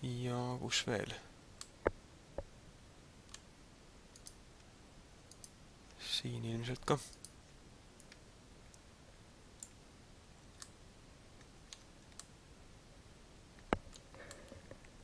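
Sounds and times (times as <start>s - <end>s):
room hiss: 0.0s - 15.0s
computer mouse clicks: 3.3s - 3.5s, 4.1s - 4.4s, 5.3s - 5.6s, 6.7s - 7.4s, 8.0s - 8.8s, 9.6s - 9.8s, 11.4s - 12.3s, 13.6s - 15.0s.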